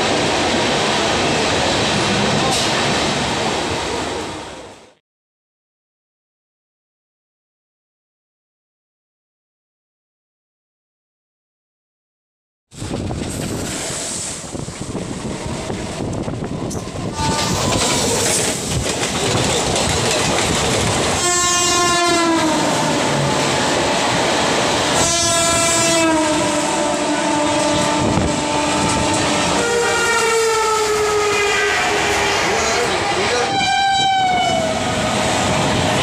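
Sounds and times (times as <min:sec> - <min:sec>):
train rushing and wheel rattle: 0:00.0 - 0:05.0, 0:12.7 - 0:36.0
train horn blasts: 0:17.0 - 0:18.0, 0:21.2 - 0:23.3, 0:25.0 - 0:34.9.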